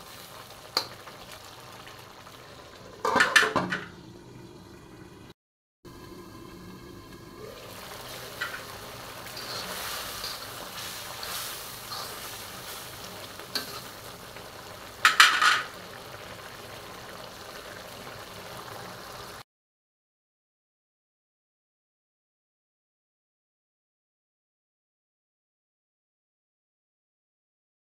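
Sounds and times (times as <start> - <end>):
food sizzling in oil: 0.0 - 5.2, 5.9 - 19.4.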